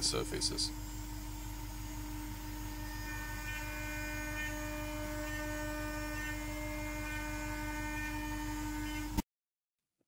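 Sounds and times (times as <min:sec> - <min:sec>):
router spindle whining: 0:01.7 - 0:09.2
end mill cutting metal: 0:02.4 - 0:09.2.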